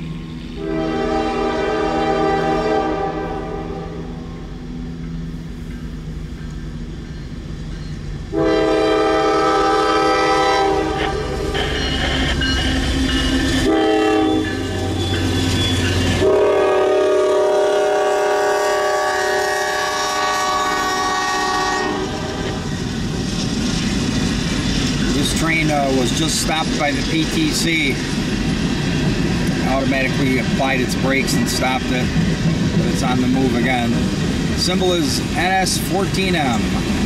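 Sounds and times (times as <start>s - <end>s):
locomotive engine rumble: 0.0s - 37.0s
train air horn blasts: 0.6s - 4.2s, 8.3s - 11.9s, 13.5s - 15.0s, 16.1s - 22.6s
wheels clacking over rail joints: 22.0s - 37.0s.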